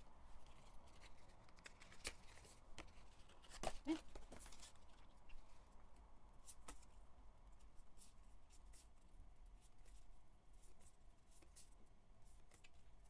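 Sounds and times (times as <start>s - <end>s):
paper cards being flipped: 0.4s - 5.0s.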